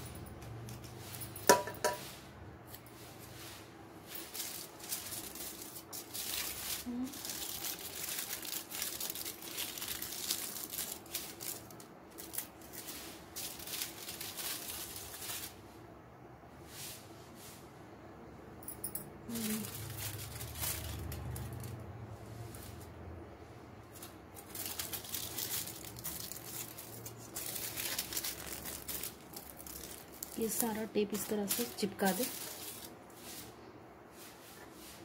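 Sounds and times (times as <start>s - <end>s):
aluminium foil crinkling: 4.1s - 15.6s, 19.3s - 23.0s, 23.8s - 33.5s.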